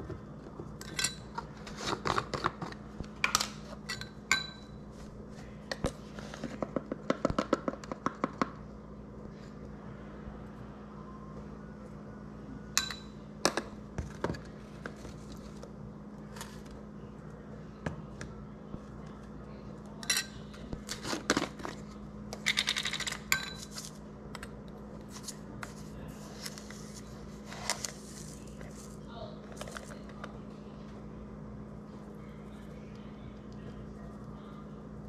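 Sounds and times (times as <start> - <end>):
steady low hum: 0.0 - 35.0
kitchen utensils clinking: 0.8 - 4.8, 20.0 - 21.8, 22.4 - 24.5.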